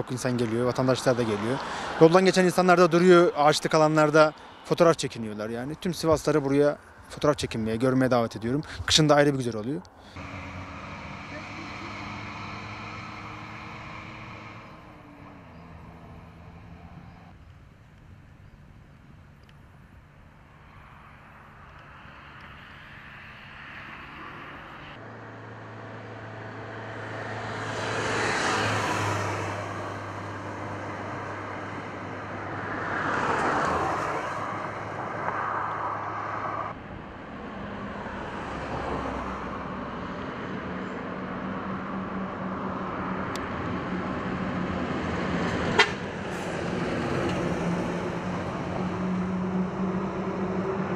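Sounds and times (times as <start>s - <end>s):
vehicles passing: 0.0s - 50.9s
truck engine running: 10.1s - 16.5s.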